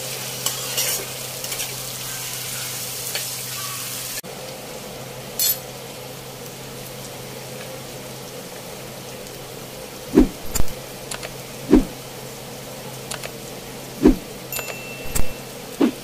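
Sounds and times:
steady low hum: 4.3s - 16.0s.

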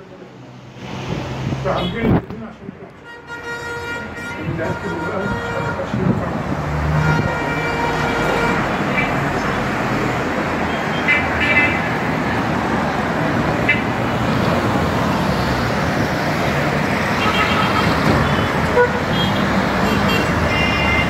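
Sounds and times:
city road traffic: 0.0s - 21.0s
car horn toots: 17.2s - 21.0s.

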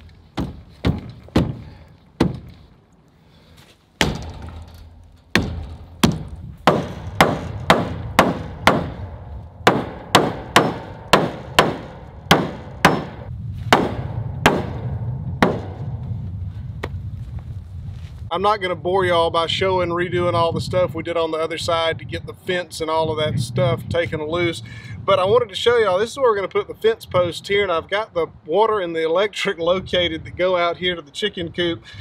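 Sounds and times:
hammer striking wooden post: 0.4s - 2.6s, 4.0s - 15.9s.

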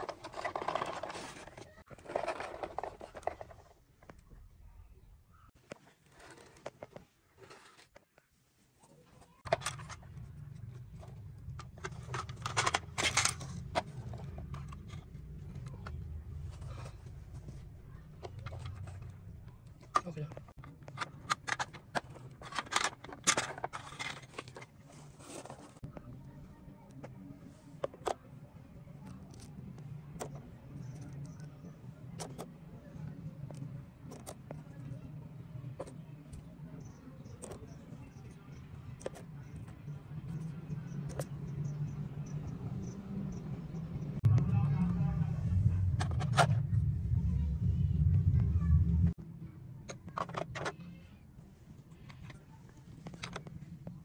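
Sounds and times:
plastic toys knocking and scraping: 0.0s - 4.4s, 5.6s - 8.2s, 8.8s - 26.1s, 26.9s - 28.3s, 28.9s - 42.6s, 45.9s - 46.6s, 49.8s - 51.0s, 51.9s - 54.0s
low steady rumble: 9.6s - 20.5s, 39.9s - 49.6s
low hum: 39.9s - 49.8s.

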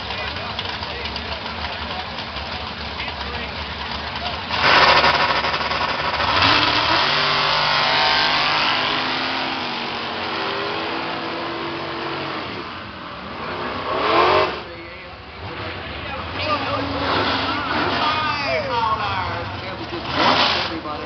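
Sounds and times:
race car engines at full throttle: 0.0s - 21.0s
short loud engine rev: 4.5s - 12.7s, 13.3s - 14.7s, 19.9s - 21.0s.

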